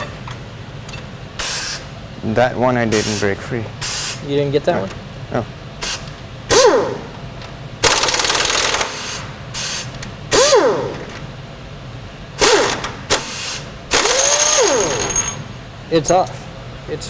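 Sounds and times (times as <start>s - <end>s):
air impact wrench whining: 1.4s - 1.9s, 5.8s - 7.2s, 7.8s - 11.2s, 12.4s - 15.5s
impact wrench rapid hammering: 7.8s - 9.2s, 12.4s - 15.4s.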